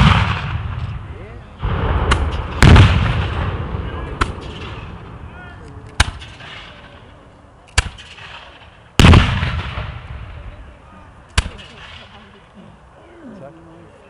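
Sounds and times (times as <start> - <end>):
musket shots: 0.0 - 0.8, 1.6 - 5.1, 5.9 - 7.0, 7.7 - 10.3
cannon boom rumbling: 0.0 - 7.0, 9.0 - 10.6.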